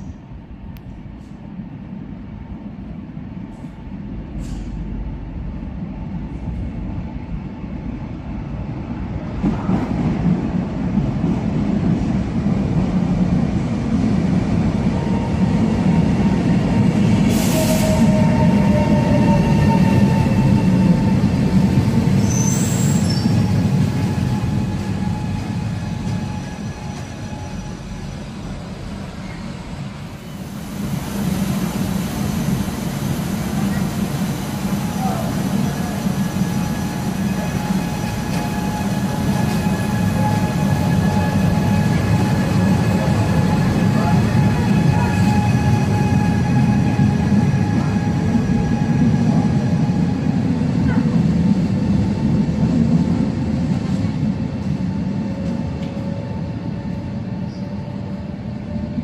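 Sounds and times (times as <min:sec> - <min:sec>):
train rumbling: 0:00.0 - 0:59.0
high brake squeal: 0:22.2 - 0:23.5, 0:24.3 - 0:28.2.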